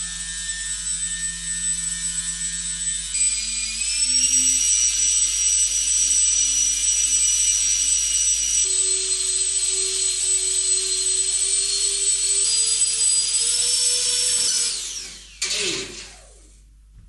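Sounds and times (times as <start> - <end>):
electric fan motors whining: 0.0 - 16.6.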